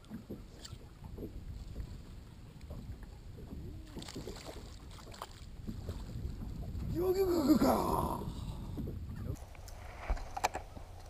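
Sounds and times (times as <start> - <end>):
water lapping against boat hull: 0.0 - 11.0
wind on microphone: 0.0 - 11.0.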